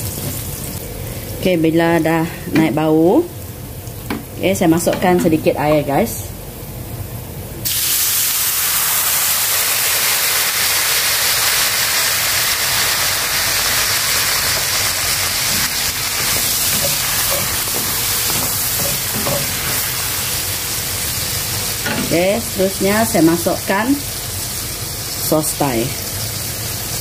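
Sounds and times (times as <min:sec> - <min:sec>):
water sizzling in hot oil: 0:07.6 - 0:27.0.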